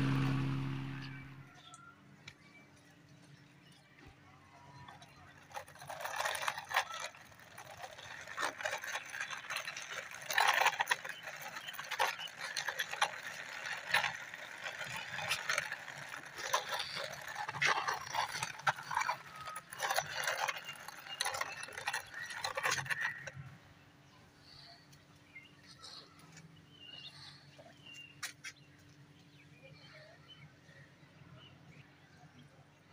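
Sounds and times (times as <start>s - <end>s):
toy wheels clicking and scraping: 4.6s - 23.6s.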